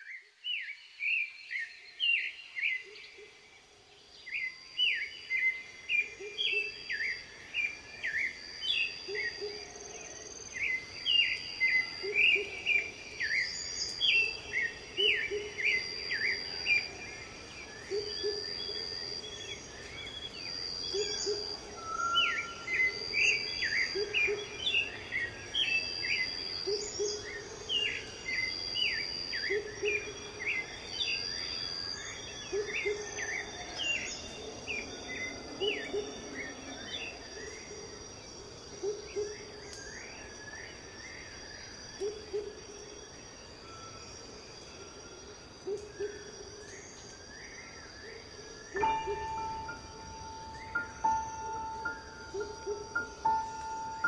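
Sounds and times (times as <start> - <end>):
songbirds chirping: 0.0 - 54.0.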